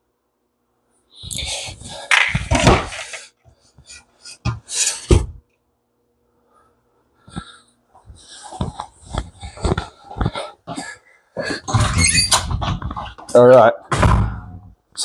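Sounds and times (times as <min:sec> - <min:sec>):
knocks and thuds: 0:13.9 - 0:14.7.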